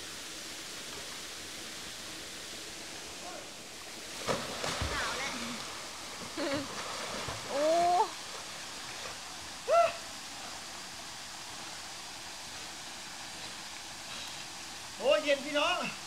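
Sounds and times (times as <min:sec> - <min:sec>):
person crying out: 0:07.5 - 0:08.2, 0:09.7 - 0:10.1.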